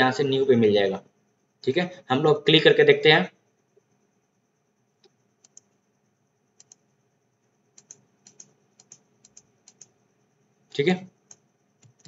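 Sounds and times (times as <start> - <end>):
faint computer clicks: 5.0 - 5.8, 6.6 - 6.9, 7.7 - 10.0, 11.2 - 12.0.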